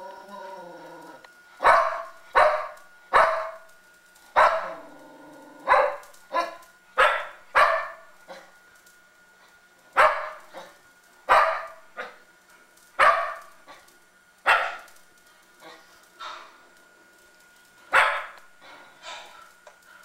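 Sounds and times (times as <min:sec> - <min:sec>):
dog barking: 0:01.6 - 0:03.6, 0:04.4 - 0:04.8, 0:05.7 - 0:08.0, 0:10.0 - 0:10.4, 0:11.3 - 0:12.2, 0:13.0 - 0:13.5, 0:14.5 - 0:14.9, 0:17.9 - 0:18.4.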